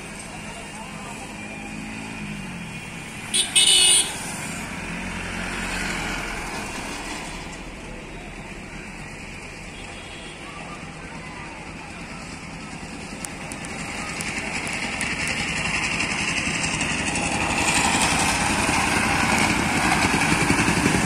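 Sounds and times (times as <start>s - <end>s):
vehicle passing: 4.1s - 8.8s, 13.5s - 21.0s.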